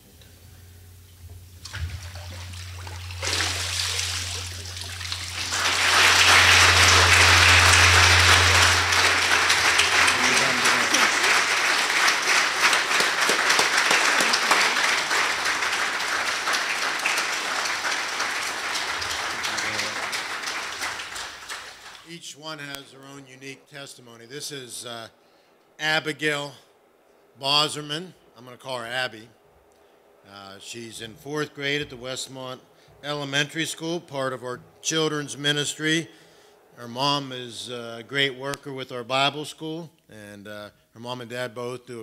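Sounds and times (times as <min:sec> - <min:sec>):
low steady hum: 0:00.0 - 0:39.4
congregation applauding: 0:01.7 - 0:22.1.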